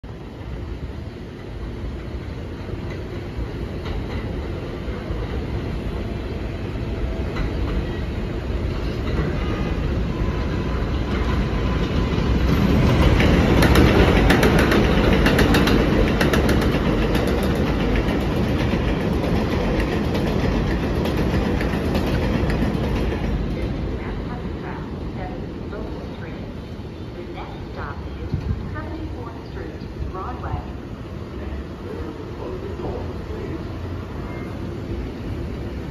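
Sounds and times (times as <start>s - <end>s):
subway train rumble: 0.0s - 35.9s
wheel clacks over rail joints: 12.8s - 23.6s.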